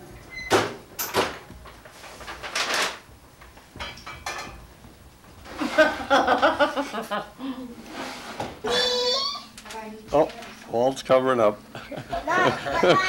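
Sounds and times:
dishes clinking on a table: 0:03.8 - 0:04.6.

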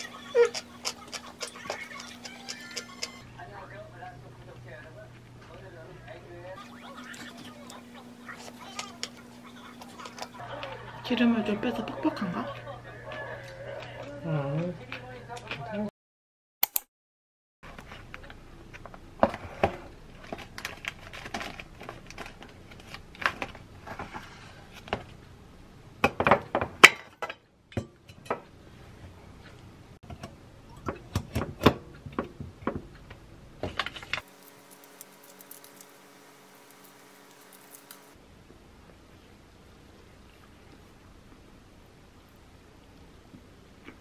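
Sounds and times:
faint steady hum: 0:00.0 - 0:15.3, 0:31.8 - 0:44.0.

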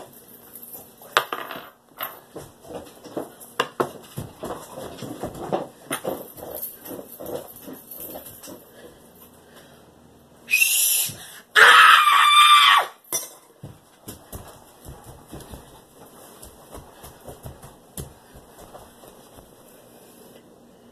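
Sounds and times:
whistle blasts: 0:10.5 - 0:11.2.

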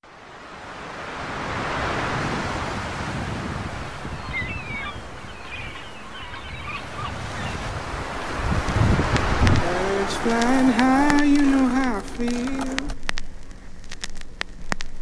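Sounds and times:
wind: 0:00.0 - 0:15.0
surf washing onto beach: 0:00.1 - 0:14.9
faint high chirps: 0:04.1 - 0:07.7.

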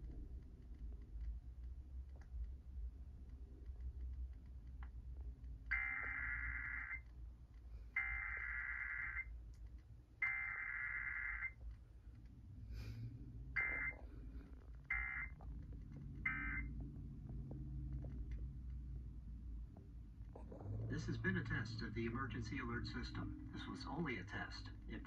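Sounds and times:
harsh electronic data bursts: 0:05.7 - 0:07.0, 0:16.3 - 0:16.7.

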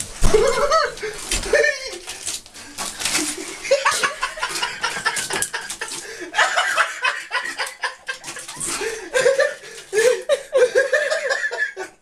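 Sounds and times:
person chuckling and laughing: 0:00.2 - 0:02.1, 0:03.2 - 0:12.0.

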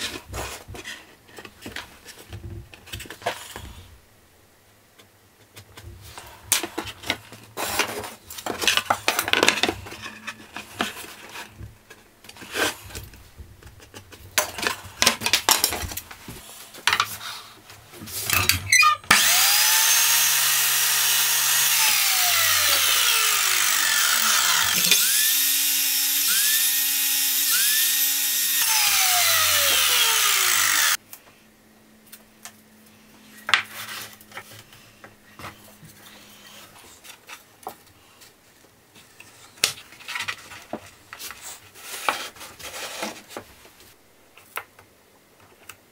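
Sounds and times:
mitre saw motor whining: 0:19.1 - 0:31.0.

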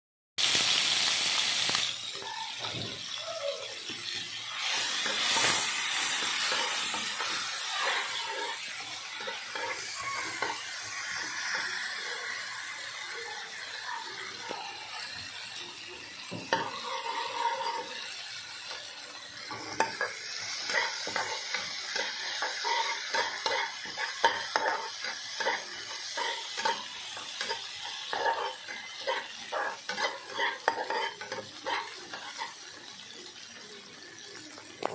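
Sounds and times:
paste sizzling in hot oil: 0:00.4 - 0:34.9
metal spatula scraping a wok: 0:04.6 - 0:11.6, 0:16.4 - 0:18.2, 0:19.5 - 0:32.6.

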